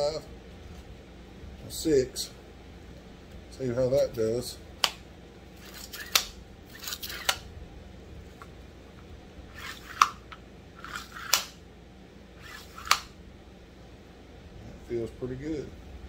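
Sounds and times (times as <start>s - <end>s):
sharp click: 5.8s - 7.4s, 10.9s - 11.6s, 12.8s - 13.1s.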